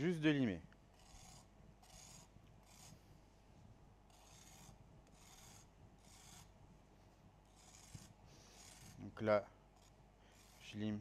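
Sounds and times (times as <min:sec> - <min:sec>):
zester rasping against pastry crust: 0:00.9 - 0:03.1, 0:04.1 - 0:06.6, 0:07.4 - 0:11.0.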